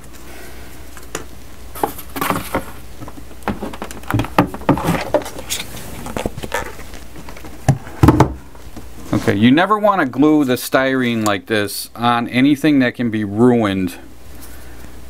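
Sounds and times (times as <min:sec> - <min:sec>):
plastic sheets taps and rustles: 0:01.0 - 0:09.3
knock of object set down: 0:07.7 - 0:08.4.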